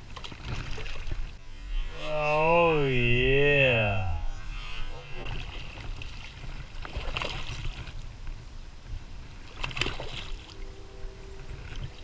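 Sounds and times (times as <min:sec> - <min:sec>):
low rumble: 0:01.3 - 0:06.8.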